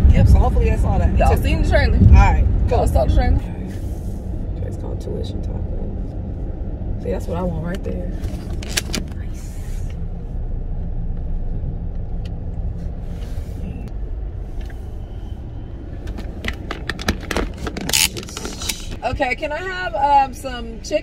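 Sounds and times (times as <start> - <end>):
car engine and tyres rumbling: 0.0 - 21.0.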